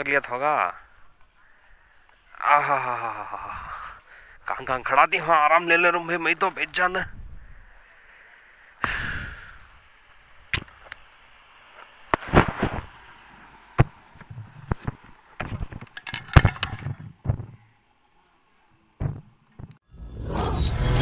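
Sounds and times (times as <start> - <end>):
camera handling knocks and clicks: 13.8 - 17.6.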